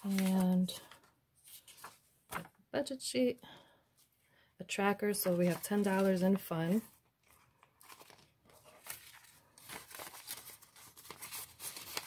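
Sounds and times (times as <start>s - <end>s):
paper rustling: 0.0s - 2.6s, 5.1s - 12.0s.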